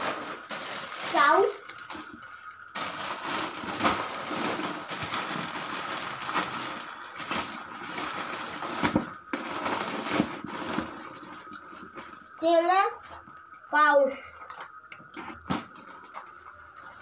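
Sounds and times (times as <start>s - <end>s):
plastic bags crinkling: 0.0s - 12.3s.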